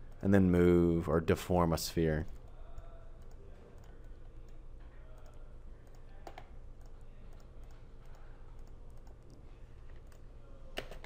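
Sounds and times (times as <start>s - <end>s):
low steady hum: 0.0s - 11.0s
computer mouse clicks: 2.3s - 10.2s.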